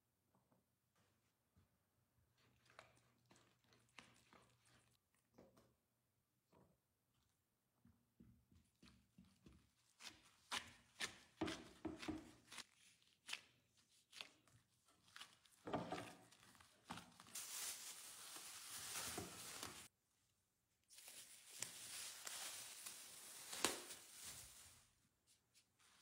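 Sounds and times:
dough squishing: 2.2 - 5.6, 8.8 - 17.7
plastic rustling: 16.2 - 19.9, 20.9 - 25.0.

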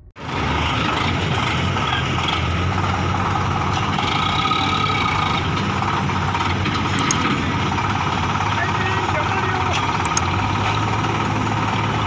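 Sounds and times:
diesel engines idling: 0.0 - 12.0.

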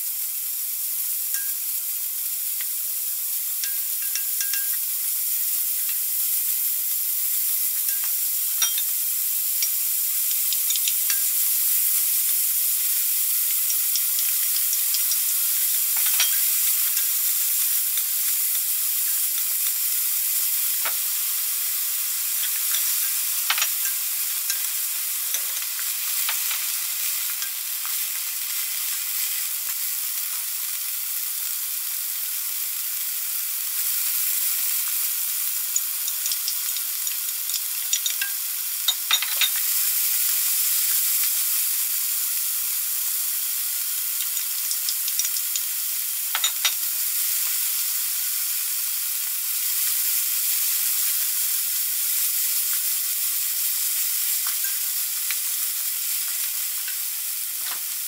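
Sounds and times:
meat sizzling in a pan: 0.0 - 58.0.

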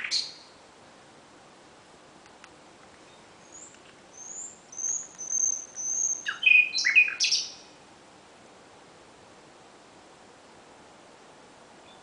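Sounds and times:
nightingale singing: 0.0 - 0.6, 3.0 - 7.8, 11.8 - 12.0.

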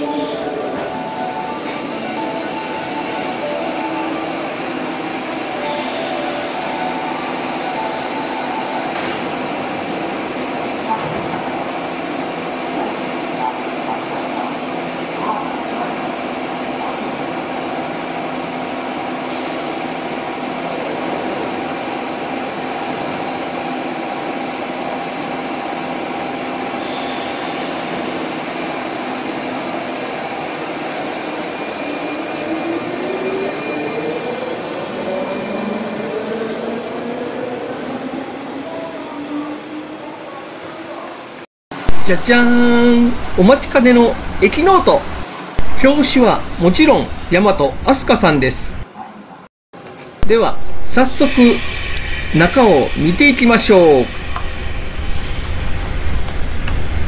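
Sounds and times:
train equipment humming: 50.6 - 57.0.

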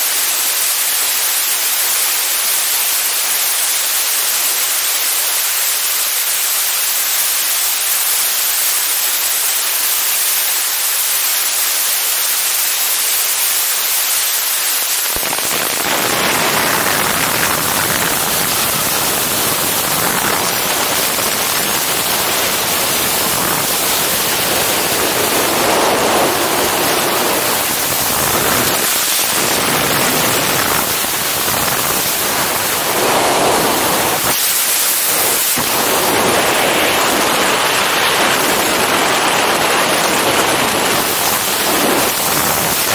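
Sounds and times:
wind rushing over microphone: 15.0 - 42.9.

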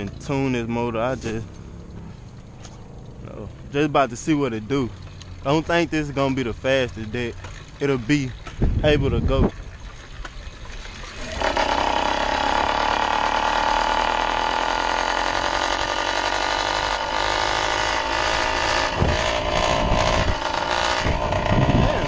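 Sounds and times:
wind buffeting microphone: 8.2 - 10.0, 18.9 - 22.0
two-stroke bicycle engine revving: 11.1 - 22.0.

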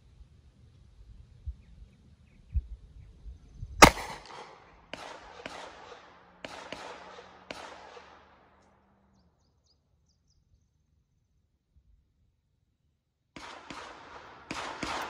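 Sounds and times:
loud revolver shot: 3.8 - 8.5, 13.4 - 15.0
faint sharp bangs: 3.8 - 8.9, 13.4 - 15.0.

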